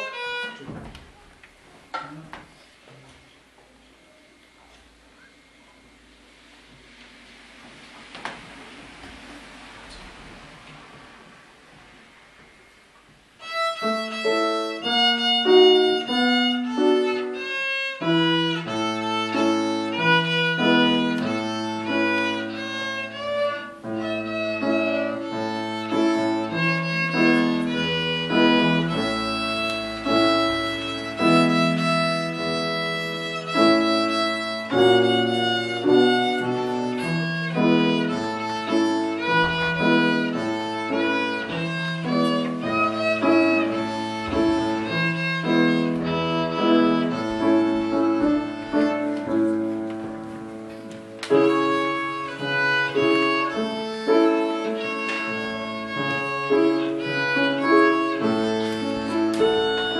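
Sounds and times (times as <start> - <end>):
violin melody: 0.0 - 1.3, 13.2 - 59.9
low held notes: 0.0 - 59.9.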